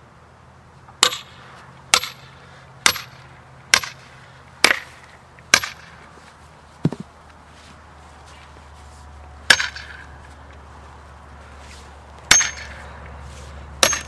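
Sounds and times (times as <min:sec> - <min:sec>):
hammer striking steel wedges: 0:01.0 - 0:06.0, 0:09.5 - 0:10.1, 0:12.3 - 0:12.9, 0:13.8 - 0:14.0.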